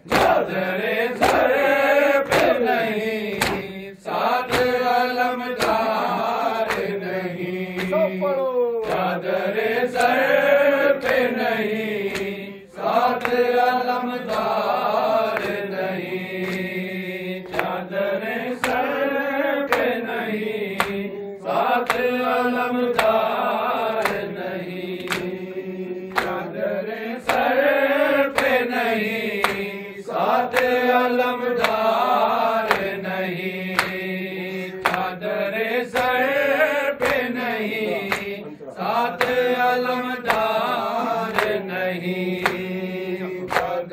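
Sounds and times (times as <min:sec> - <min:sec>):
men chanting in unison: 0:00.0 - 0:43.9
hand slaps on chest: 0:00.1 - 0:03.8, 0:04.4 - 0:05.0, 0:05.6 - 0:06.0, 0:06.6 - 0:07.0, 0:07.8 - 0:08.0, 0:08.8 - 0:09.2, 0:10.0 - 0:10.2, 0:11.0 - 0:11.3, 0:13.2 - 0:13.5, 0:15.3 - 0:15.7, 0:16.4 - 0:16.8, 0:17.4 - 0:17.8, 0:19.7 - 0:20.0, 0:20.7 - 0:21.1, 0:21.8 - 0:22.2, 0:22.9 - 0:23.3, 0:24.0 - 0:24.3, 0:25.0 - 0:25.4, 0:26.1 - 0:26.5, 0:28.3 - 0:28.6, 0:29.4 - 0:29.7, 0:30.5 - 0:30.9, 0:31.6 - 0:32.0, 0:32.6 - 0:33.0, 0:33.7 - 0:34.1, 0:34.8 - 0:35.2, 0:37.0 - 0:37.4, 0:38.0 - 0:38.4, 0:39.1 - 0:39.5, 0:40.3 - 0:40.7, 0:41.3 - 0:41.6, 0:42.4 - 0:42.7, 0:43.5 - 0:43.8.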